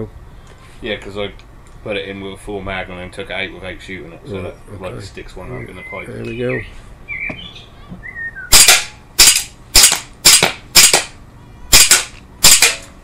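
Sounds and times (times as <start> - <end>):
air pistol shots: 8.5 - 12.9.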